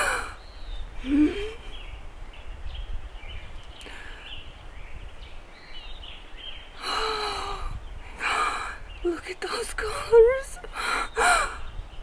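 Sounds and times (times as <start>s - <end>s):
woman sobbing: 0.0s - 0.4s, 1.0s - 1.8s, 9.7s - 11.6s
outdoor background noise: 0.0s - 12.0s.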